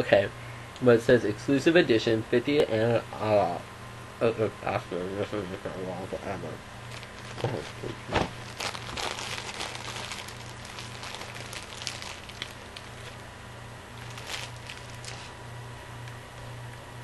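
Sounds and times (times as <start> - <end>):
low hum: 2.8 - 17.0
plastic wrapper crinkling: 6.8 - 13.3, 13.9 - 15.4.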